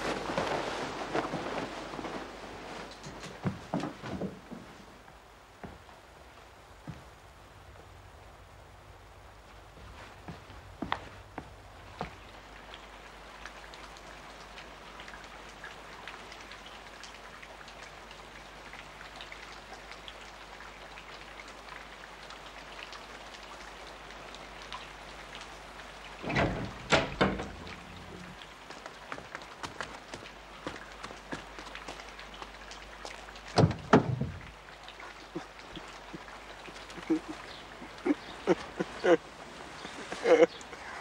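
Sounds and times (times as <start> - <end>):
rain pattering: 0.0 - 41.0
knocks and thuds: 26.2 - 28.0, 33.6 - 34.5.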